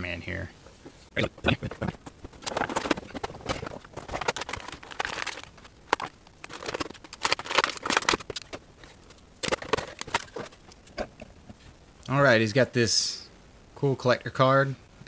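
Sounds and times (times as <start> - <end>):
cardboard and plastic crinkling: 1.6 - 11.7.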